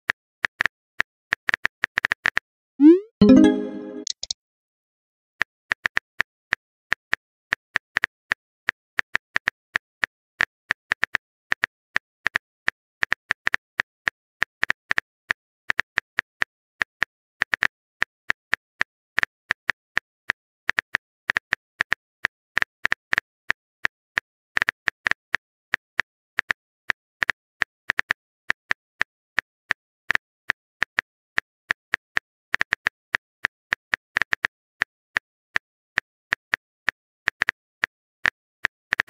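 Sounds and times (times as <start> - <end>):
phone keyboard typing clicks: 3.2 - 4.4.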